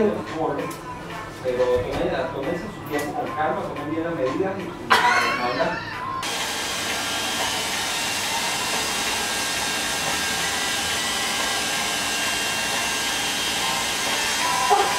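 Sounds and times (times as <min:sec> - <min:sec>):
hair dryer blowing: 0:06.2 - 0:14.9.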